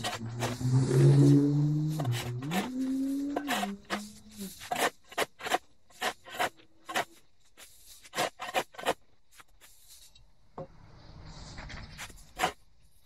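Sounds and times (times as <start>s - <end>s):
shovel scraping into dirt: 0.0s - 7.2s, 8.0s - 9.0s.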